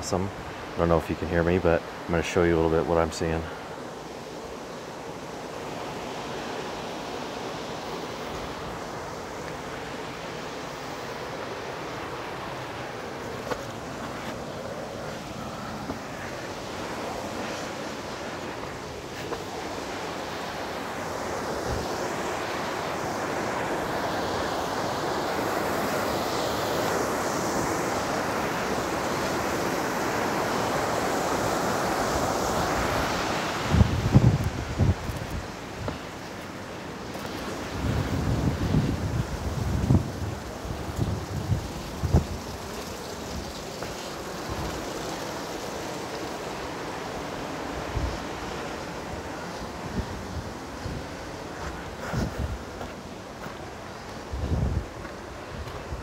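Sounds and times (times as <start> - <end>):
steady rushing noise: 0.0 - 56.0.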